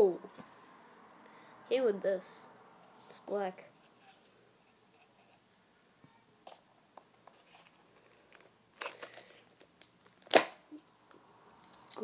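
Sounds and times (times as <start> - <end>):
box clicks and rustles: 7.3 - 10.6.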